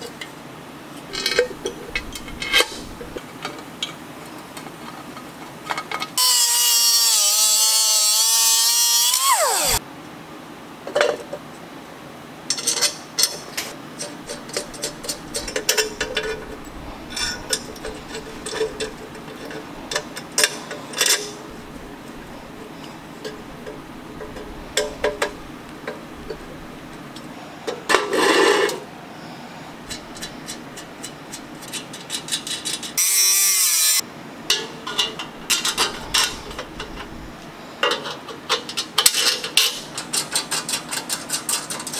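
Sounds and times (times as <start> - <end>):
metal parts clinking: 1.1 - 3.2, 14.0 - 26.7, 34.5 - 37.1
grinder whining cutting steel: 6.2 - 9.8, 33.0 - 34.0.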